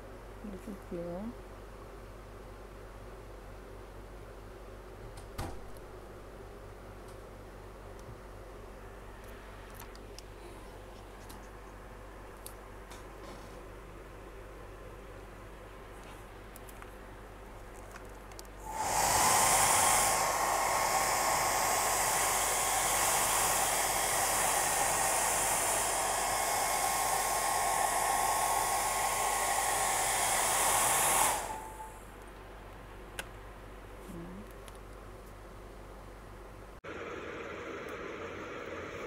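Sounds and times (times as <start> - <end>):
heat gun hissing with faint whine: 18.6 - 32.1.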